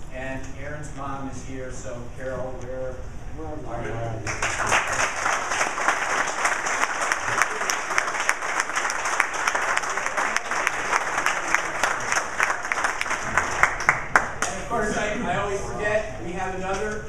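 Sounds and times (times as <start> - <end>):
crowd applauding: 4.3 - 14.7.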